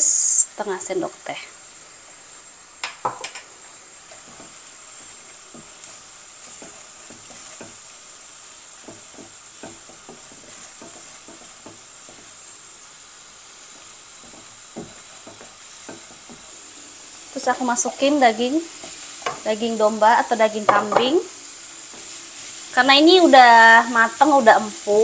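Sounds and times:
paste sizzling in oil: 0.0s - 25.0s
spatula scraping pan: 4.0s - 8.0s, 8.7s - 12.6s, 13.6s - 17.5s.

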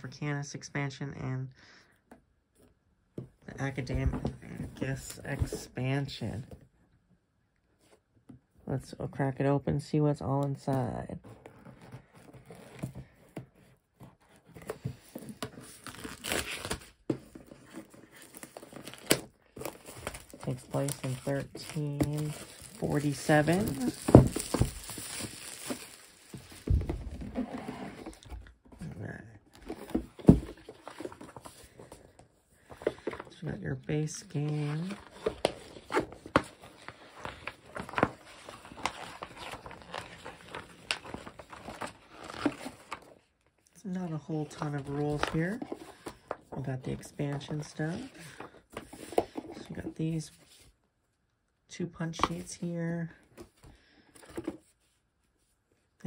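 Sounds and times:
rulebook pages rustling: 3.5s - 6.2s, 10.6s - 43.3s, 44.0s - 50.8s, 52.0s - 55.6s
plastic shrink wrap tearing: 19.8s - 26.6s.

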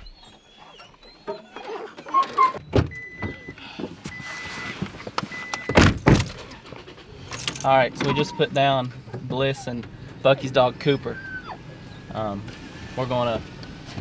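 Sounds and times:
vehicle warning chime: 2.1s - 5.8s
car door shutting: 2.4s - 6.6s.

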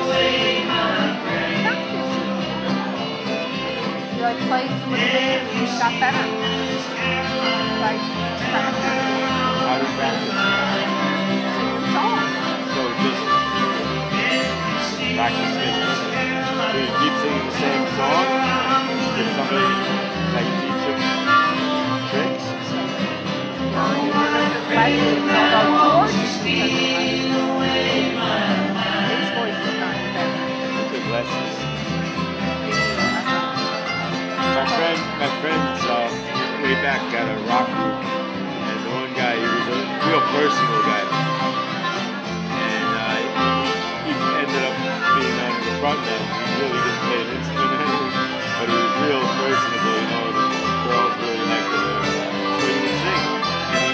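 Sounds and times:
bass line: 0.0s - 53.9s
fiddle: 0.0s - 53.9s
harmonica: 0.0s - 53.9s
strummed acoustic guitars: 0.0s - 53.9s.

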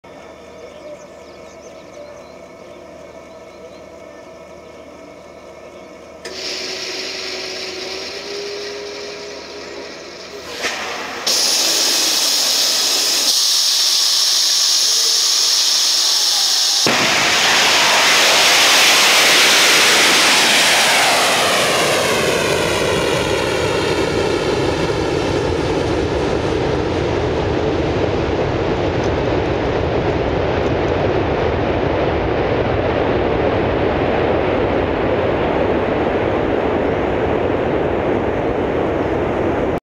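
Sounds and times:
rocket engine deep roar: 0.1s - 39.8s
rocket engine hissing: 6.1s - 35.2s.

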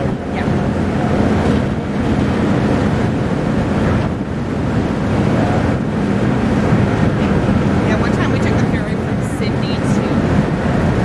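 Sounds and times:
ferry diesel engines droning: 0.0s - 11.0s
propeller wash churning: 0.0s - 11.0s
wind blowing across microphone: 0.0s - 11.0s.

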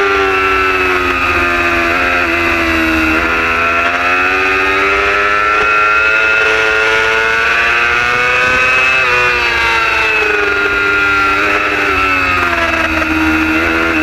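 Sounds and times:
superbike engine at high revs: 0.0s - 14.0s.

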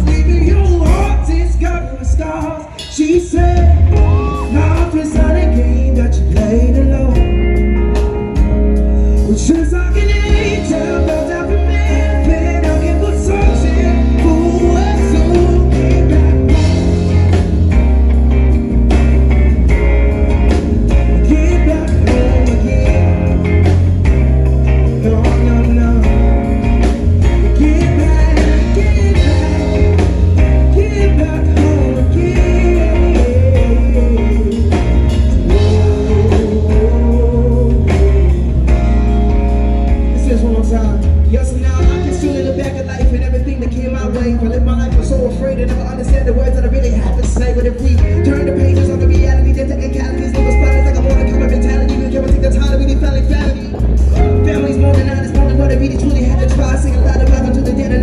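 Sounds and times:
man singing: 0.0s - 17.8s, 20.5s - 58.0s
live band playing: 0.0s - 58.0s.

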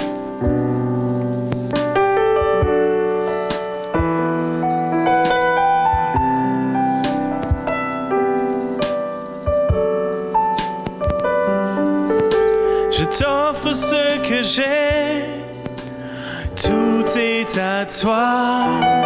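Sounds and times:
keyboard chords: 0.0s - 19.0s
wordless singing with vibrato: 11.3s - 19.0s.

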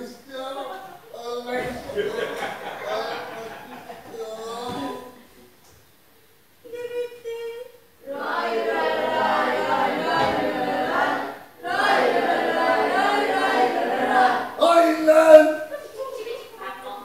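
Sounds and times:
group singing unaccompanied: 8.0s - 15.7s.

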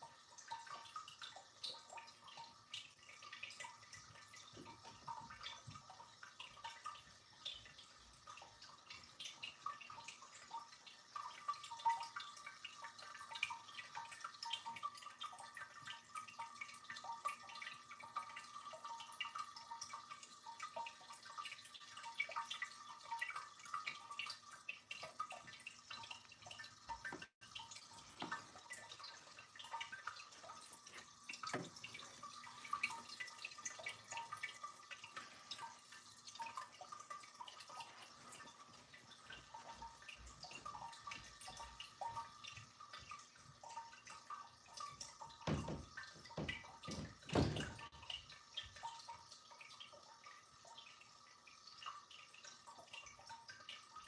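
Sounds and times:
fountain water trickling and dripping: 0.0s - 54.0s.

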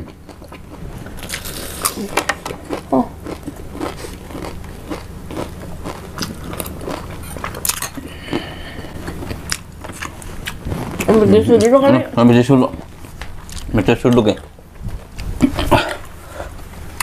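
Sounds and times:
crunchy food being chewed: 0.0s - 11.7s, 12.7s - 14.2s.

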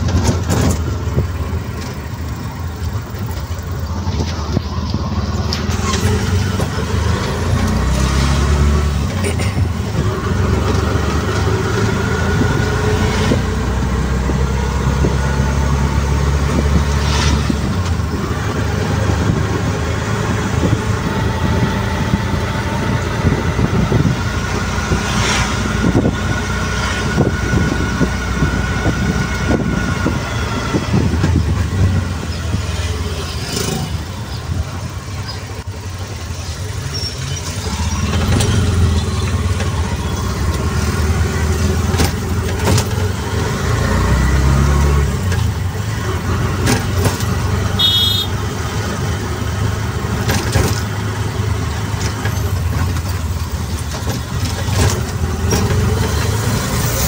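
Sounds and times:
road traffic engine rumble: 0.0s - 57.0s
short high horn beep: 47.8s - 48.4s.

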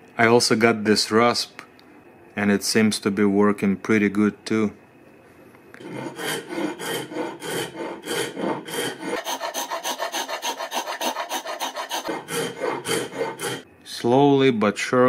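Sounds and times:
hand rasp scraping: 5.8s - 13.6s.

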